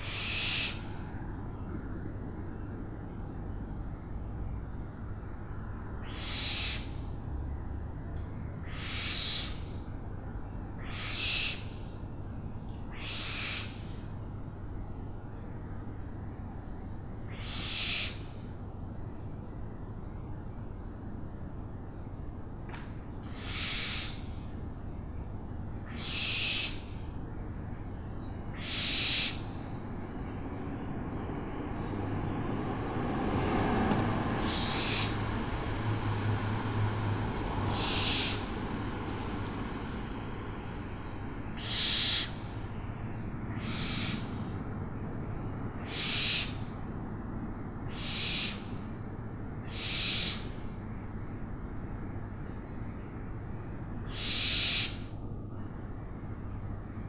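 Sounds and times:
owl hissing screeches: 0.0s - 1.0s, 6.0s - 6.9s, 8.6s - 9.7s, 10.8s - 11.8s, 12.9s - 13.9s, 17.3s - 18.4s, 23.3s - 24.4s, 25.8s - 27.0s, 28.5s - 29.6s, 34.4s - 35.4s, 37.6s - 38.6s, 41.5s - 42.5s, 43.5s - 44.5s, 45.8s - 46.7s, 47.9s - 48.7s, 49.6s - 50.6s, 54.1s - 55.1s
steady background hiss: 0.0s - 57.0s.

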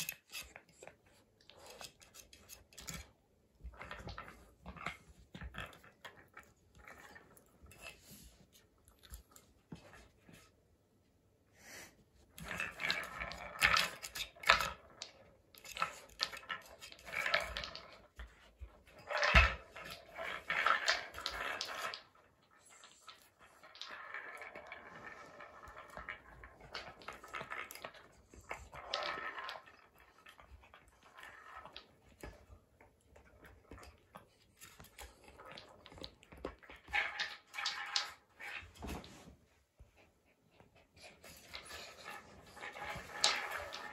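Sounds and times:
wooden balls clattering and rolling: 0.0s - 10.5s, 12.2s - 39.4s, 40.9s - 43.9s
wooden toy clicking and knocking: 12.4s - 18.4s.

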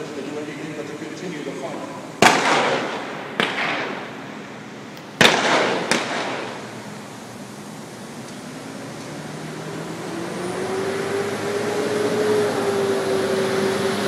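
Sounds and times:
gunfire bangs with echo: 2.2s - 4.4s, 5.2s - 6.8s.

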